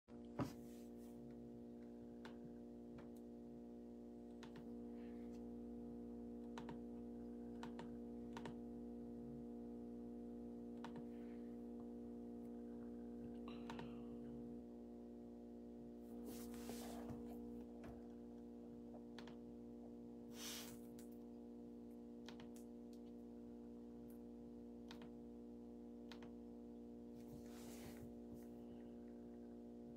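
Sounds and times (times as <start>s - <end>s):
low electrical hum: 0.1s - 29.9s
faint irregular clicks: 4.3s - 4.7s, 6.4s - 6.8s, 22.2s - 23.2s.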